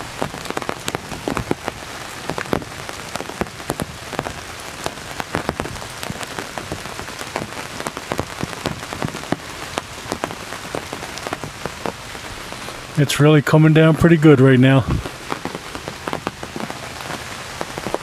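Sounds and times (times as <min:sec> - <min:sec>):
heavy rain hiss: 0:00.0 - 0:18.0
raindrop taps: 0:00.0 - 0:18.0.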